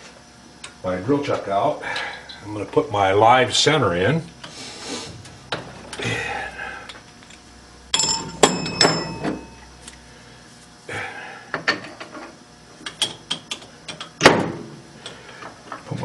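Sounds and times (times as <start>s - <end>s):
metal tooling clinking and clanking: 7.3s - 9.6s.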